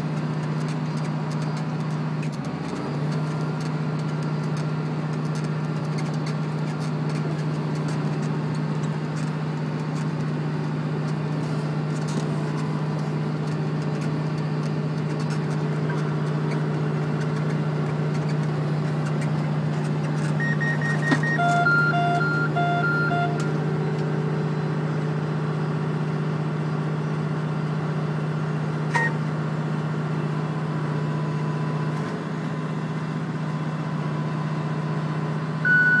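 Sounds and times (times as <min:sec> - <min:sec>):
tractor engine running: 0:00.0 - 0:36.0
electronic beeps: 0:20.2 - 0:24.0, 0:35.7 - 0:36.0.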